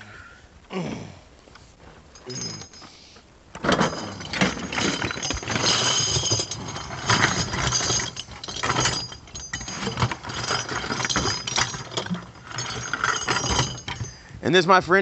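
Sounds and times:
metal shell casings clattering: 0:03.6 - 0:14.3.

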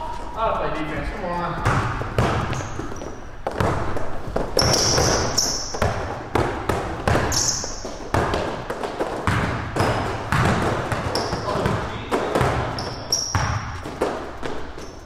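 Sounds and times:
basketball dribbling on hardwood: 0:01.0 - 0:14.9
sneaker squeaks: 0:01.5 - 0:06.2, 0:07.1 - 0:08.4, 0:09.3 - 0:15.0.

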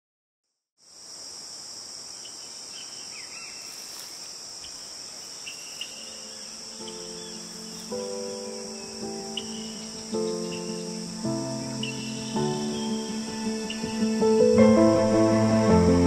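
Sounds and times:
insects chirring: 0:00.8 - 0:16.0
soft sustained music chords: 0:05.6 - 0:16.0.

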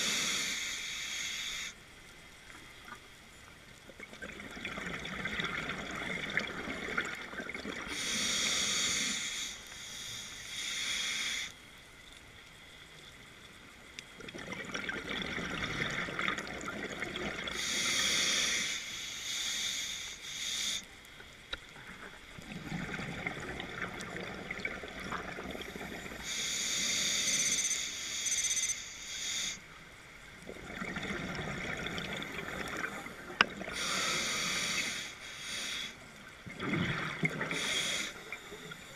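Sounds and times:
diver breathing through regulator: 0:00.0 - 0:01.8, 0:07.9 - 0:11.6, 0:17.5 - 0:20.9, 0:32.6 - 0:36.0, 0:37.4 - 0:38.9.

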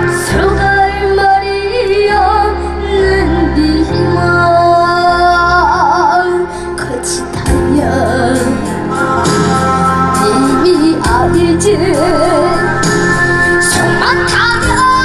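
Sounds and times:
person singing with vibrato: 0:00.0 - 0:15.0
backing band track: 0:06.2 - 0:15.0.

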